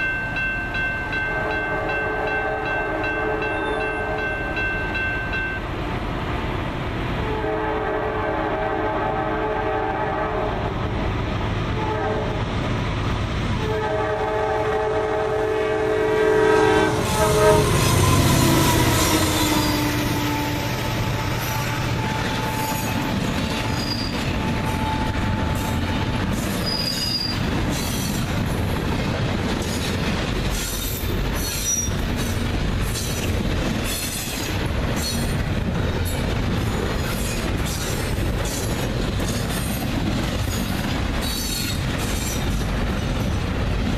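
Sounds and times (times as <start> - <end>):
train air horn blasts: 1.2 - 4.5, 7.2 - 10.7, 11.8 - 12.4, 13.6 - 23.0
locomotive rumble: 5.7 - 43.9
flange squeal: 16.9 - 28.2
train wheels clacking: 17.1 - 43.9.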